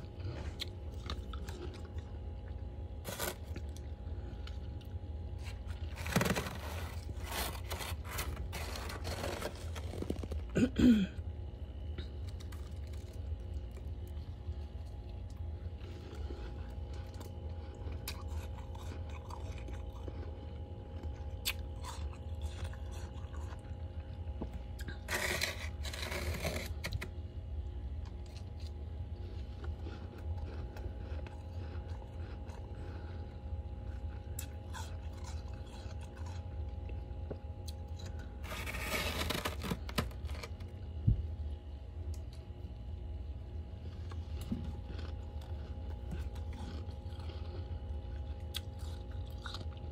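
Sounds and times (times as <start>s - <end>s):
freezer frost crunching: 0.0s - 49.9s
steady low hum: 0.0s - 49.9s.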